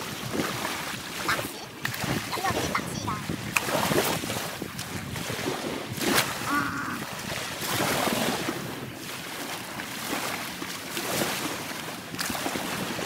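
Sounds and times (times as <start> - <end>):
wind on microphone: 0.0 - 9.1
waves washing on beach: 0.0 - 13.0.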